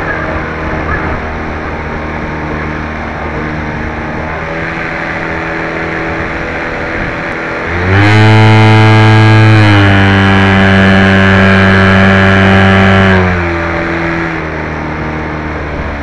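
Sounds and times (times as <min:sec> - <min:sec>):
model airplane motor running: 0:04.6 - 0:14.3.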